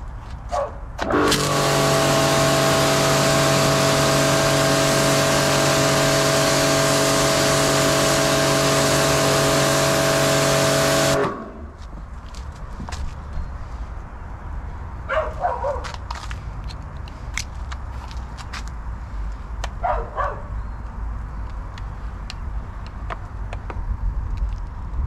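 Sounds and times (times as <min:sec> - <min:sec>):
pressure washer motor hum: 0:01.0 - 0:11.7
water jet hissing: 0:01.2 - 0:11.5.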